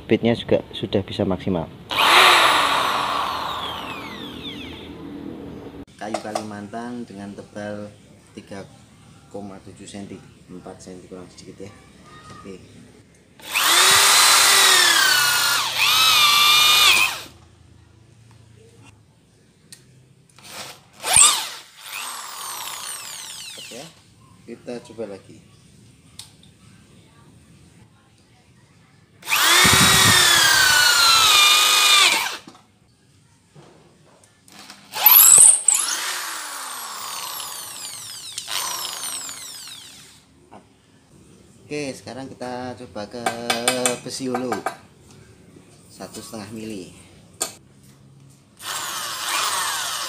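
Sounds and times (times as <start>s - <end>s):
electric drill boring into wood: 1.9s - 4.9s, 13.4s - 17.3s, 20.4s - 24.0s, 29.2s - 32.5s, 34.9s - 40.2s, 48.6s - 50.0s.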